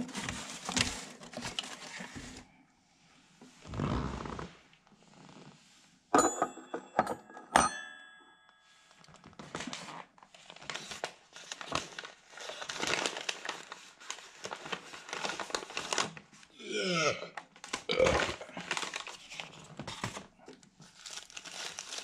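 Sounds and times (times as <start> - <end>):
sharp ringing clinks: 6.2 - 8.5
paper wrapper crinkling: 9.4 - 16.4, 17.4 - 22.0.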